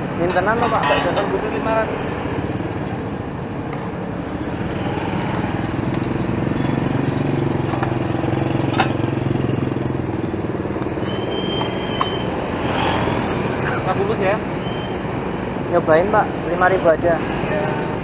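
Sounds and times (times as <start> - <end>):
street traffic: 0.0 - 18.0
motorcycle engine running: 4.4 - 13.4.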